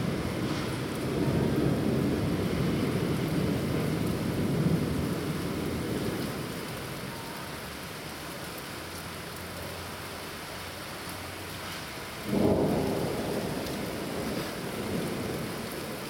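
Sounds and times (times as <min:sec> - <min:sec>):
rolling thunder: 0:00.0 - 0:06.6, 0:12.2 - 0:16.0
rain hissing: 0:00.0 - 0:16.0.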